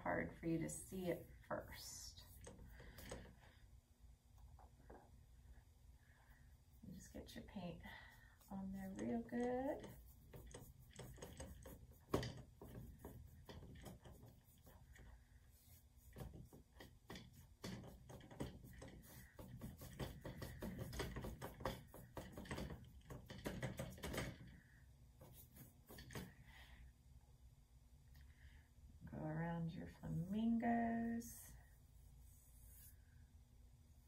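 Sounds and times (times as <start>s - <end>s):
brush scrubbing on canvas: 6.8s - 23.8s, 25.2s - 26.3s, 32.0s - 33.2s.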